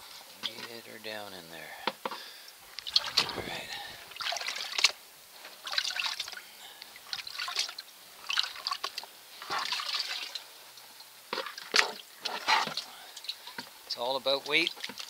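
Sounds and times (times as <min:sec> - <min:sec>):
water sloshing and splashing: 0:02.7 - 0:04.7.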